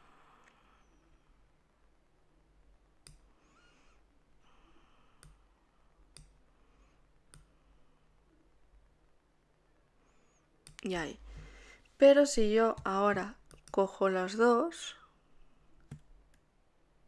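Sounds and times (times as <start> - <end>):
computer mouse clicks: 3.0 - 3.8, 5.2 - 5.4, 6.1 - 6.4, 7.3 - 7.6, 10.6 - 10.9, 12.7 - 13.8, 15.8 - 16.5.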